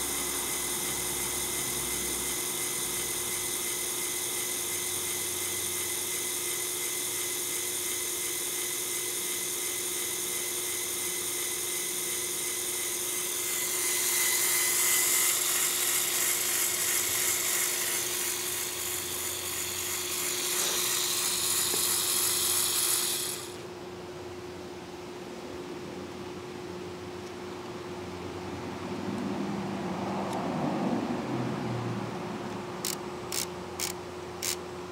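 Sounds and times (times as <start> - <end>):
toy electric motor whirring: 0.0 - 23.7, 32.8 - 34.6.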